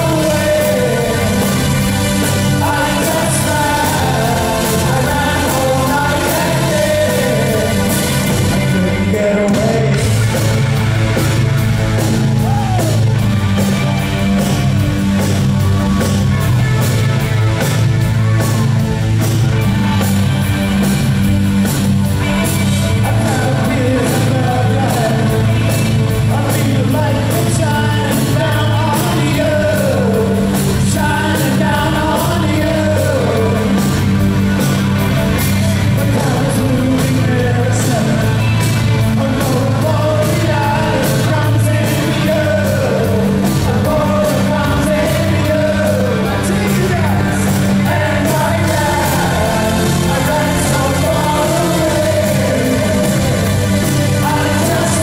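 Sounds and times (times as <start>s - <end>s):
man singing: 0.0s - 10.7s, 22.2s - 34.2s, 35.8s - 55.0s
live rock band playing: 0.0s - 55.0s.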